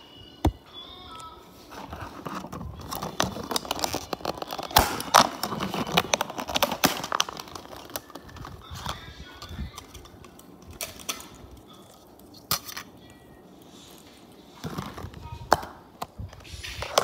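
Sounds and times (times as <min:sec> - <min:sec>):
plastic cup crackling and clicking: 0:00.5 - 0:13.2
plastic snapping: 0:02.2 - 0:12.9.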